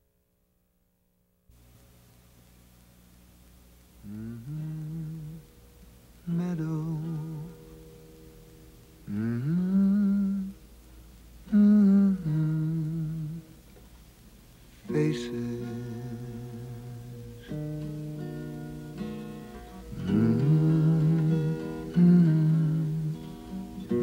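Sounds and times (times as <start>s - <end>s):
low voice humming a melody: 4.0s - 5.5s, 9.0s - 10.6s, 11.5s - 13.5s, 19.9s - 24.0s.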